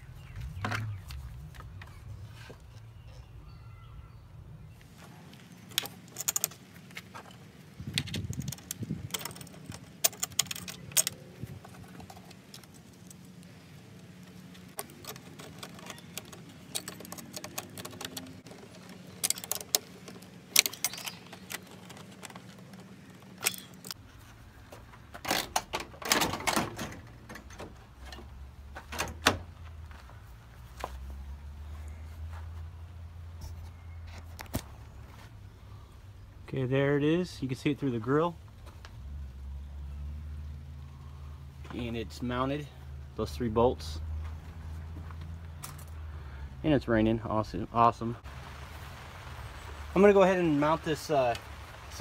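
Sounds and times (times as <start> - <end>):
metal hardware clinking: 5.7 - 7.4, 8.0 - 13.4, 14.2 - 24.0.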